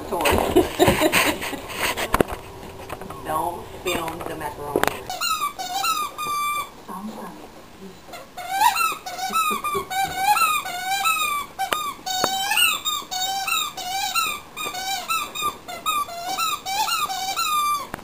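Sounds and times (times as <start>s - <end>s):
rubber dog toy squeaking: 4.9s - 6.8s, 8.1s - 18.0s.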